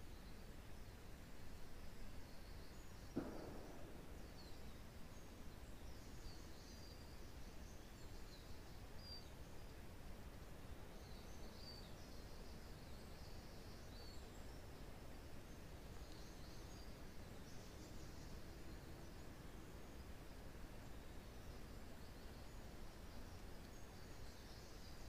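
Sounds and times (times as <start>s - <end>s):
birds chirping faintly: 0.0s - 25.0s
dull thump: 3.1s - 4.7s.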